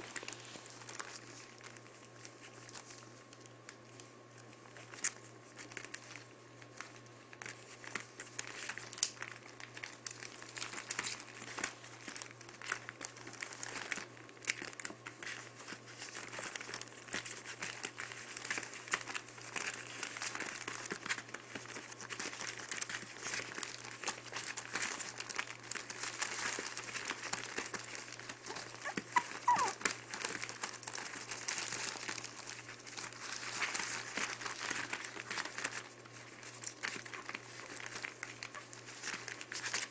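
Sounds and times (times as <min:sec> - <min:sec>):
newspaper crinkling and rustling: 0:00.0 - 0:39.9
puppy squeak: 0:28.8 - 0:29.8.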